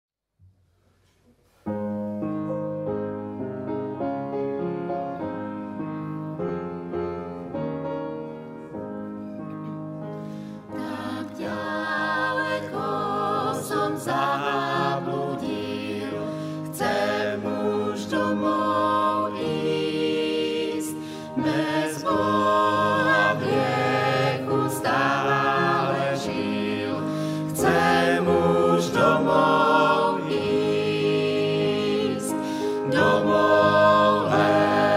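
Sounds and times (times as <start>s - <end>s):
piano playing: 1.7s - 34.9s
vocal quartet singing a hymn: 10.2s - 34.9s.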